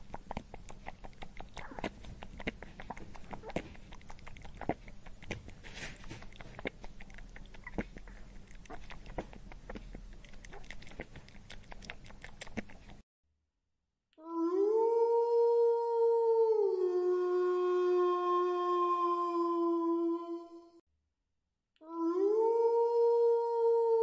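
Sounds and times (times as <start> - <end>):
rabbit chewing grass: 0.0 - 13.0.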